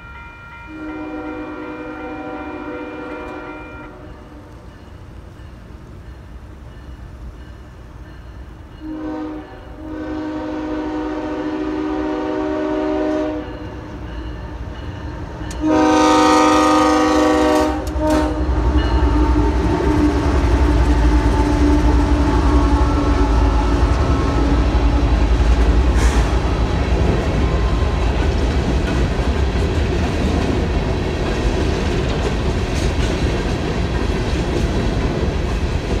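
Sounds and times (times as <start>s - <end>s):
locomotive air horn blasts: 0.0s - 4.6s, 8.8s - 13.8s, 15.6s - 26.8s.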